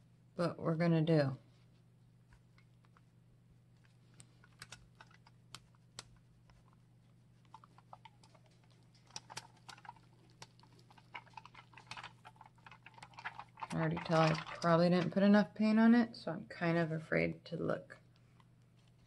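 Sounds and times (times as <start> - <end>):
steady low hum: 0.0 - 19.0
foil and paint crackling clicks: 3.7 - 15.2.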